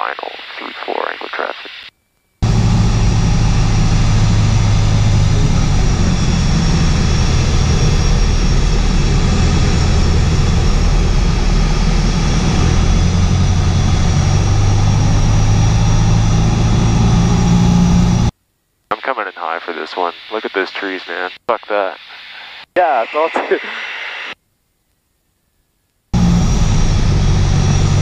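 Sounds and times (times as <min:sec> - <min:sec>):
aircraft engine and propeller drone: 0:02.4 - 0:18.3, 0:26.2 - 0:28.0.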